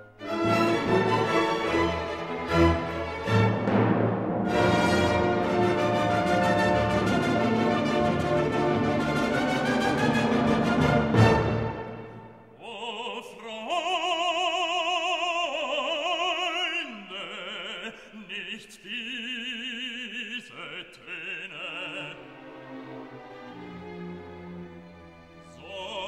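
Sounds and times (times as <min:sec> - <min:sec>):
operatic voice singing: 0:12.5 - 0:22.5, 0:25.4 - 0:26.0.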